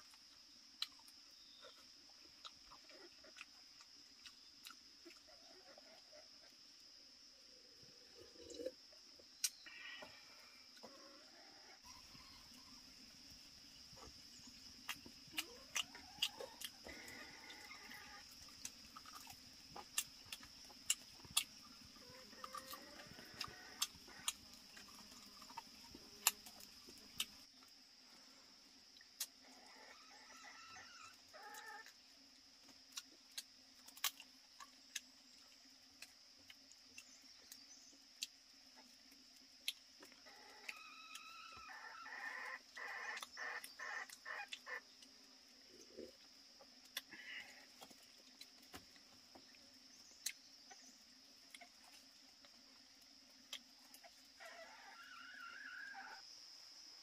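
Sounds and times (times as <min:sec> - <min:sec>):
clucking animal calls: 0:21.7 - 0:24.4, 0:40.2 - 0:44.9.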